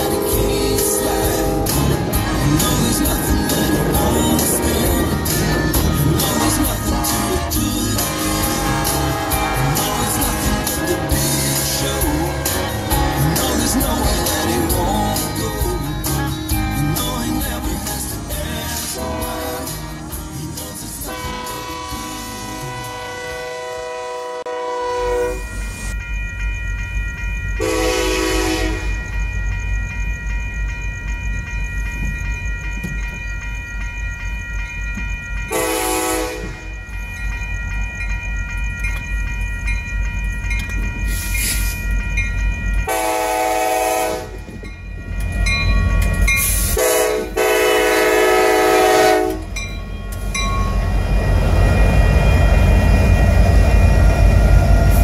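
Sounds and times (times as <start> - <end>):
train air horn blasts: 0.0 - 2.0, 6.8 - 13.5, 21.0 - 25.5, 27.6 - 28.9, 35.5 - 36.6, 42.9 - 44.5, 46.7 - 49.5
locomotive and wheel noise passing: 0.0 - 24.0, 25.3 - 55.0
crossing signal bell ringing: 0.0 - 55.0.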